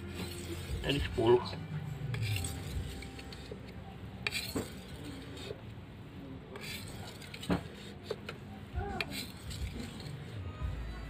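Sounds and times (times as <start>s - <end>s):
blade scraping on whetstone: 0.0s - 5.6s, 6.6s - 8.4s, 9.0s - 10.4s.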